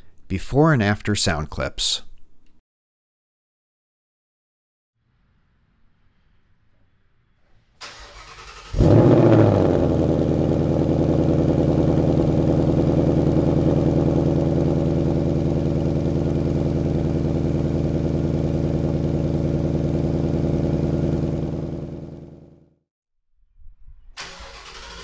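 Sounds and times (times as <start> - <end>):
car engine cold start and idle: 7.8 - 22.6, 24.2 - 25.0.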